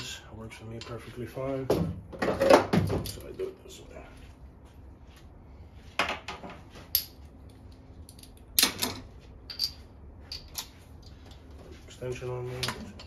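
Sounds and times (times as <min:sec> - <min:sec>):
hand tools clinking: 0:08.1 - 0:11.2.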